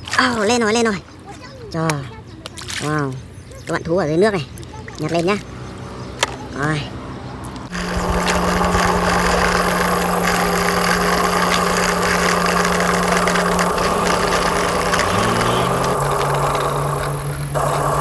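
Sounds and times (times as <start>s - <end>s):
low engine-like drone: 5.4s - 18.0s
rough crackling noise: 7.5s - 18.0s.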